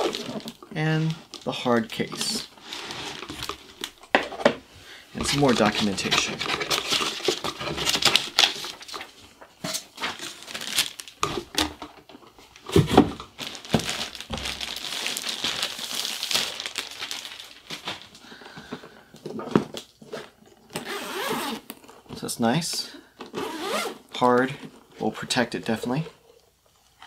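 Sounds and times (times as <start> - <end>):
plastic bag crinkling: 0.0 - 4.1, 5.2 - 9.2, 9.9 - 11.8, 12.4 - 18.4.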